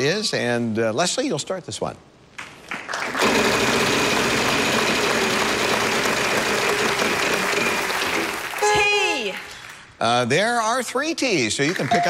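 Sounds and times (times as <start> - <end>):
studio audience applause: 2.6 - 9.9, 11.6 - 12.0.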